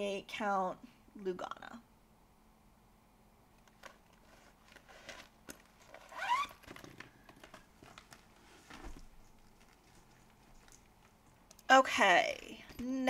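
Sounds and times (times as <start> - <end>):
fabric rustling and clicks: 3.6 - 11.7.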